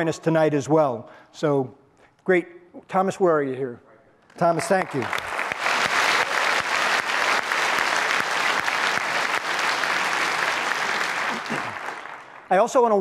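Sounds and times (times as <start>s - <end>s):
audience applauding: 4.5s - 13.0s
close sharp hand claps: 4.6s - 12.5s.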